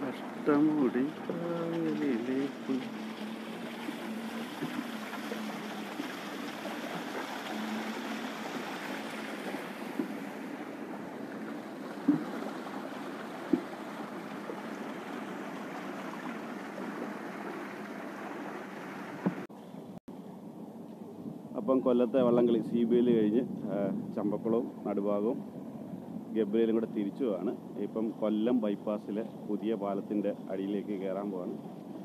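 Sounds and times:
water splashing along boat hull: 0.0s - 19.5s
sharp slaps on boat: 13.5s - 13.8s.

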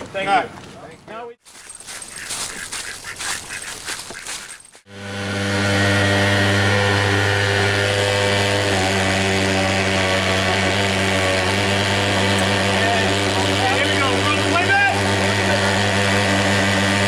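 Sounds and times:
ducks quacking: 1.5s - 4.8s
small engine humming: 3.9s - 17.0s.

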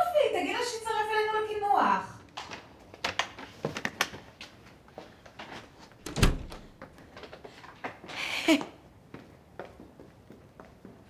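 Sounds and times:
footsteps in hallway: 2.4s - 8.1s, 9.0s - 11.0s
heavy door thudding shut: 6.0s - 6.8s.

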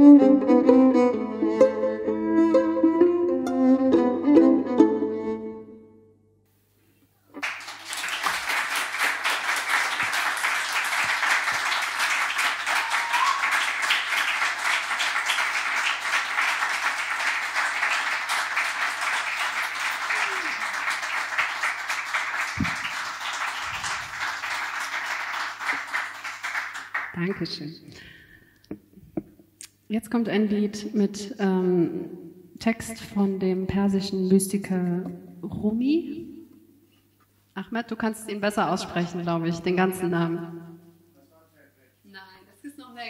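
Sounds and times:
audience applauding: 7.4s - 28.2s.

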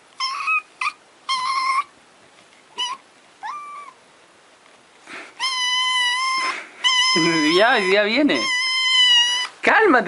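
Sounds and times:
kitten meowing: 0.2s - 1.9s, 2.8s - 4.0s, 5.4s - 9.6s.

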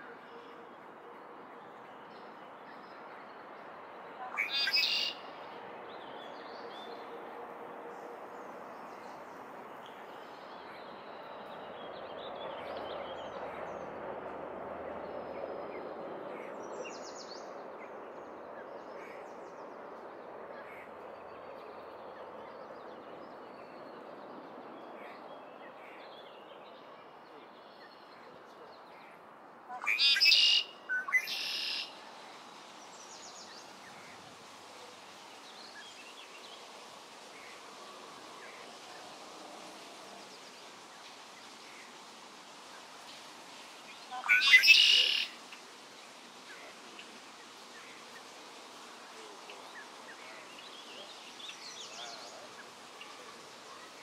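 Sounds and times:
background noise: 0.0s - 54.0s
loud bird call: 44.1s - 45.4s.

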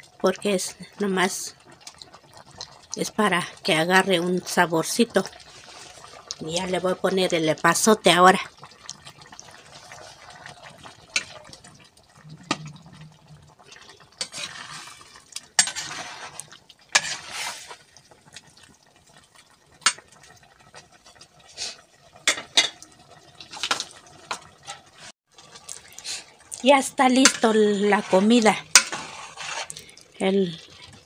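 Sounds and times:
metal spoon stirring in clay pot: 13.8s - 17.8s, 26.9s - 30.0s.

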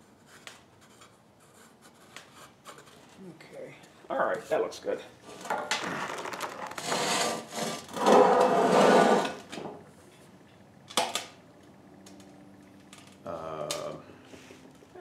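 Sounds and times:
metal scraping on metal: 6.8s - 9.4s.

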